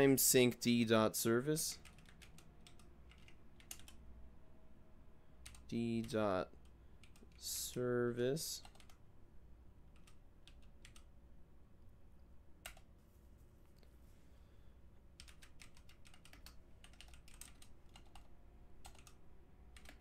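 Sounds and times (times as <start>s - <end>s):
faint keyboard typing: 1.6s - 4.1s, 5.4s - 9.1s, 9.9s - 11.2s, 12.6s - 14.0s, 15.1s - 20.0s.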